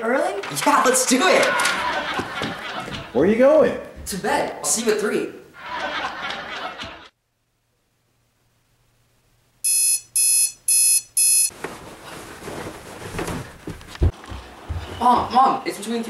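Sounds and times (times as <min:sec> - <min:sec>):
low steady hiss: 0:07.2 - 0:13.8
digital alarm clock beeping: 0:09.6 - 0:11.5.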